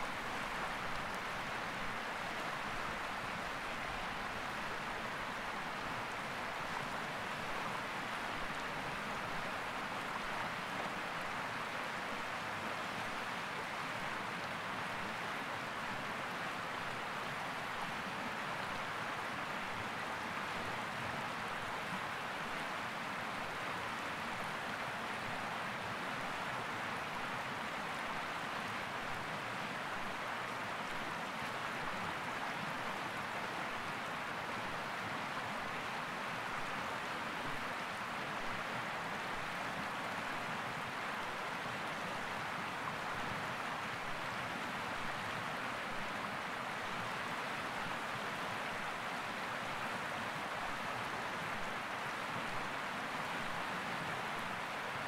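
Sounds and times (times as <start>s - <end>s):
river rushing over rocks: 0.0s - 55.0s.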